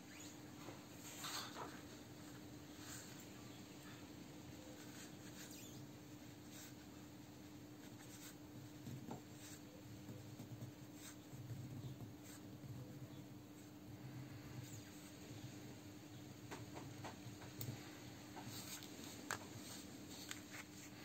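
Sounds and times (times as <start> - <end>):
low electrical hum: 0.0 - 21.0
small clicks and rubbing: 16.5 - 21.0.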